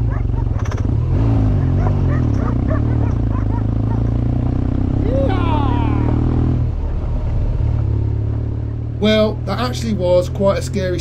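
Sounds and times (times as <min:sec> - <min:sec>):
dogs barking: 0:00.0 - 0:04.4, 0:06.6 - 0:07.3, 0:08.5 - 0:09.0
motorcycle engine running: 0:00.0 - 0:11.0.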